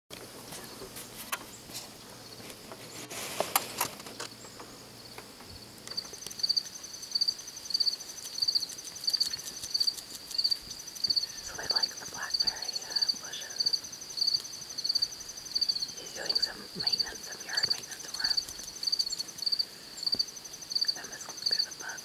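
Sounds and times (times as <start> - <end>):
brief rustle: 0.6 - 4.3
cricket chirping: 4.2 - 22.0.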